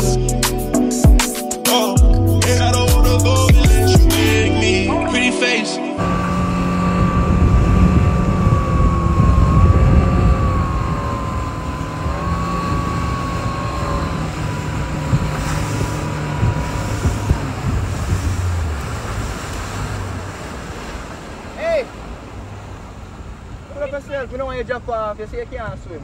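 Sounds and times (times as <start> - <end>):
thin high whine: 4.2 - 18.0
vehicle engine rumble: 6.0 - 26.0.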